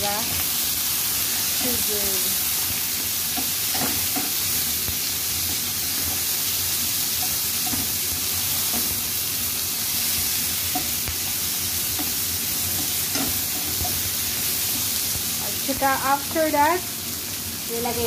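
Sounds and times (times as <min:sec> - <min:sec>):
vegetables sizzling in hot oil: 0:00.0 - 0:18.0
spatula stirring in pan: 0:02.6 - 0:15.4.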